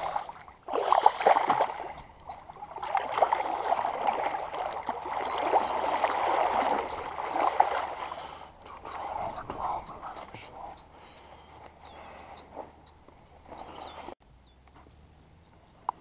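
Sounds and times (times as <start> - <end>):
fish splashing in water: 0.0 - 10.1.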